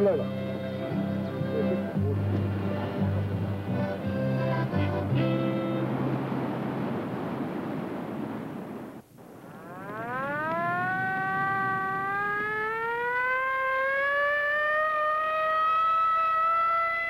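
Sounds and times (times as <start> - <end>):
long rising tone: 9.5 - 17.0.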